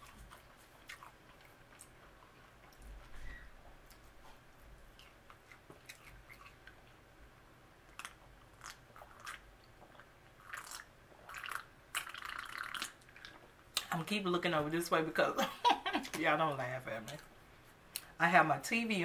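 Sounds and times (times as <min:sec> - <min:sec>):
chewing: 0:00.0 - 0:07.0, 0:07.9 - 0:13.9.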